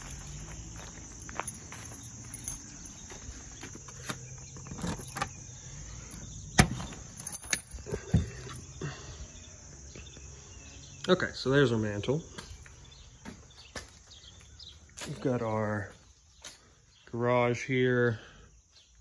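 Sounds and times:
high insect chirring: 0:00.0 - 0:08.8
key turning in deadbolt: 0:04.8 - 0:05.4.

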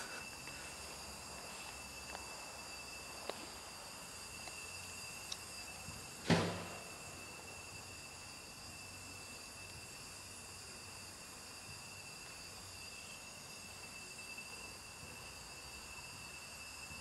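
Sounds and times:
insects chirring: 0:00.0 - 0:17.0
short thump: 0:06.3 - 0:06.8.

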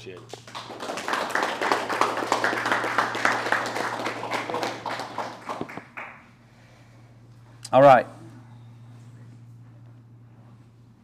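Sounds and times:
audience applauding: 0:00.1 - 0:06.3.

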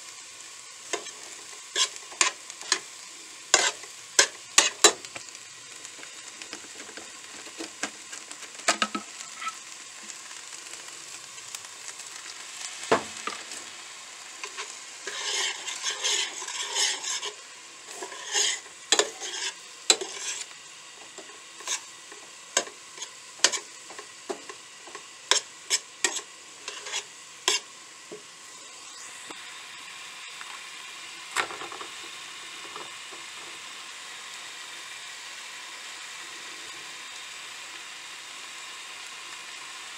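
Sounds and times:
sizzle of frying: 0:00.0 - 0:39.9
metal spoon scraping skillet: 0:00.9 - 0:05.3, 0:06.1 - 0:09.7, 0:14.4 - 0:27.7.

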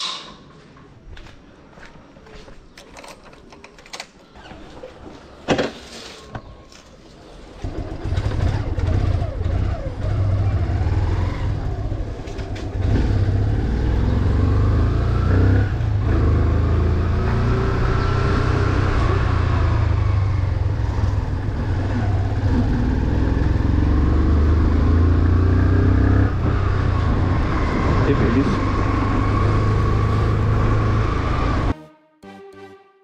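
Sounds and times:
motorcycle engine revving: 0:07.6 - 0:31.7.

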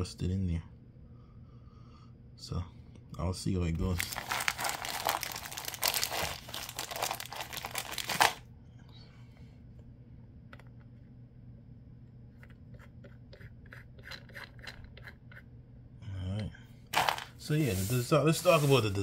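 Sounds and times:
loud rustling handling noise: 0:03.9 - 0:08.4, 0:16.9 - 0:19.0.

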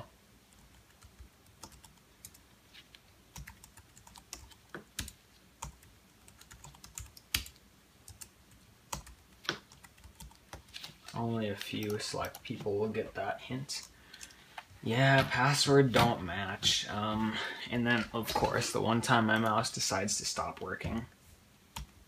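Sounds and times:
computer keyboard typing: 0:00.6 - 0:02.4, 0:03.3 - 0:08.3, 0:08.9 - 0:10.7.

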